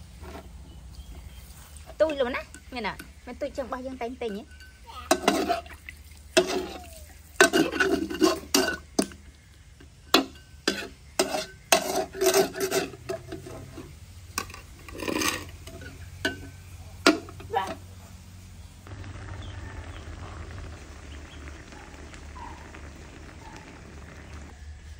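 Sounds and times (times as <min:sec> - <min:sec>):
oil sizzling: 0:00.0 - 0:24.9
metal spatula scraping metal bowl: 0:04.4 - 0:05.7, 0:06.4 - 0:06.8, 0:07.4 - 0:09.2, 0:10.1 - 0:17.8.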